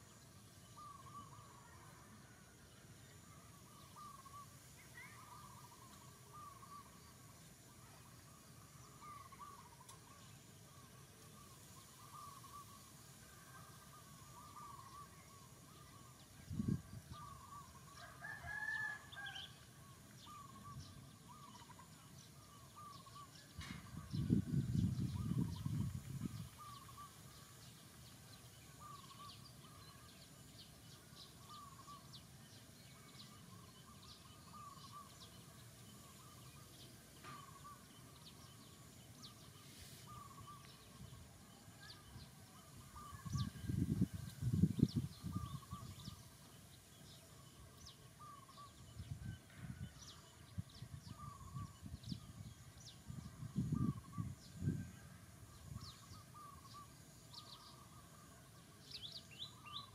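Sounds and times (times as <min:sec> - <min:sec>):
bird chirps: 0:00.0 - 0:02.4, 0:03.0 - 0:59.9
rooster crowing: 0:18.0 - 0:19.6.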